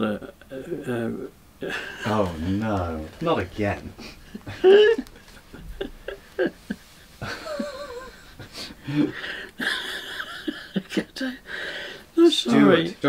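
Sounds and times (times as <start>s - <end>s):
man laughing stifled: 4.0s - 11.5s.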